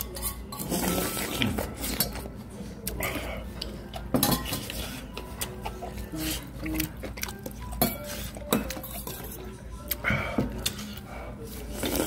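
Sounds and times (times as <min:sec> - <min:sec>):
metal spoon clinking on dishes: 0:04.1 - 0:04.8, 0:07.4 - 0:09.5.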